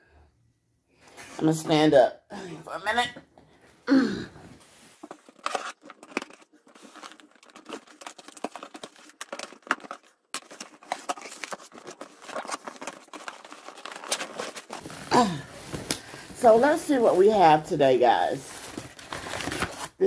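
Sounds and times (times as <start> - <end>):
cardboard and paper rustling: 4.6 - 20.0
tape tearing: 5.0 - 16.2.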